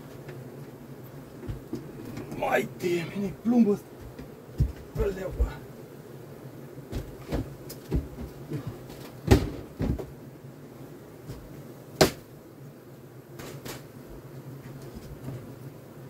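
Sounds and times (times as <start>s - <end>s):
wooden hive frames knocking: 1.3s - 2.4s, 3.5s - 5.8s, 6.8s - 10.2s.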